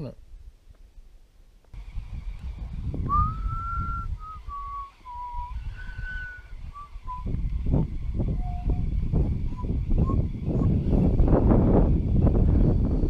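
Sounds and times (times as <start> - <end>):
low rumble: 1.8 - 13.0
person whistling a slow tune: 3.1 - 7.4, 8.4 - 8.8.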